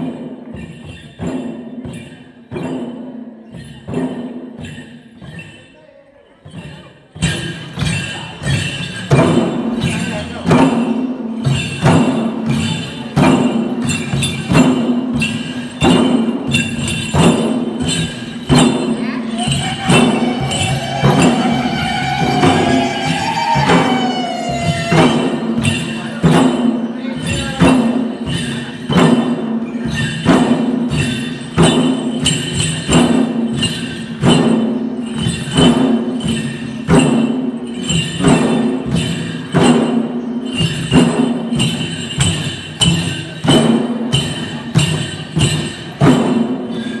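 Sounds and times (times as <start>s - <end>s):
hand-beaten barrel drums: 6.4s - 47.0s
ringing tone: 17.9s - 26.3s.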